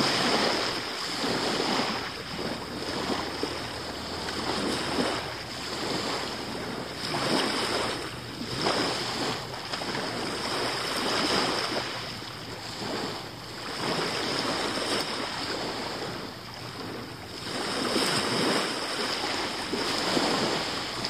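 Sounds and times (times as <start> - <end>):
waves washing onto pebble beach: 0.0 - 21.0.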